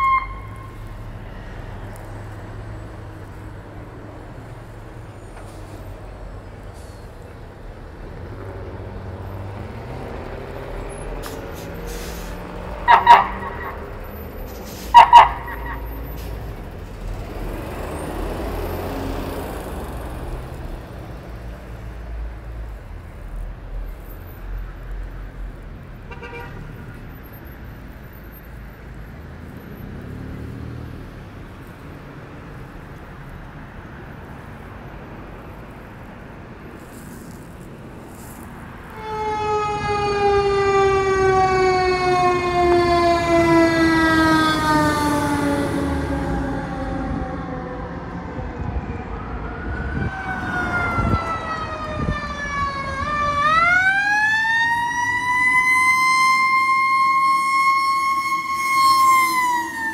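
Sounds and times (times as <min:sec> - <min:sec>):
truck horn blast: 0:00.0 - 0:01.0, 0:12.8 - 0:14.0, 0:14.9 - 0:16.0, 0:26.0 - 0:26.7, 0:39.0 - 0:41.5
siren wailing: 0:00.0 - 0:01.1, 0:12.8 - 0:14.2, 0:14.9 - 0:16.1, 0:38.9 - 0:48.2, 0:48.9 - 0:59.9
truck engine driving off: 0:00.0 - 0:26.0.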